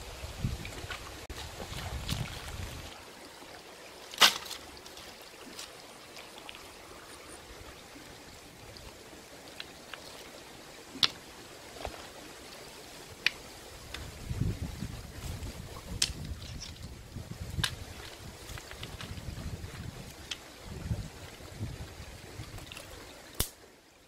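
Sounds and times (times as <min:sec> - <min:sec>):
creek running over rocks: 0:00.0 - 0:24.0
sticks and stones knocking: 0:04.1 - 0:05.8, 0:11.0 - 0:12.1, 0:15.9 - 0:16.9, 0:17.6 - 0:20.5.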